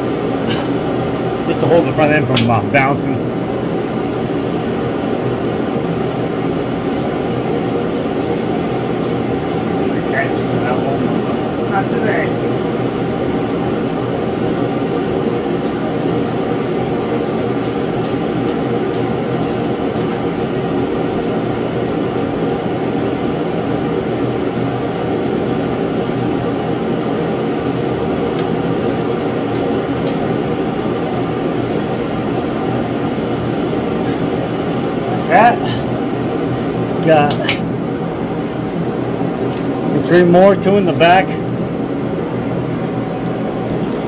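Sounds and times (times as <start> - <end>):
propane heater roaring: 0.0 - 44.0
ratchet clicking: 6.9 - 11.1, 12.6 - 20.2, 22.8 - 30.3, 31.6 - 32.6.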